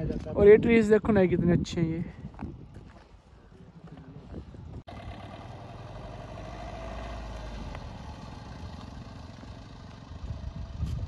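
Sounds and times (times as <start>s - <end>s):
vehicle engine running: 4.9s - 11.0s.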